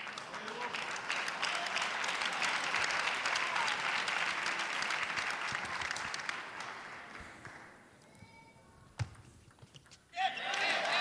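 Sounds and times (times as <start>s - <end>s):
crowd applauding: 0.0s - 7.8s, 10.2s - 11.0s.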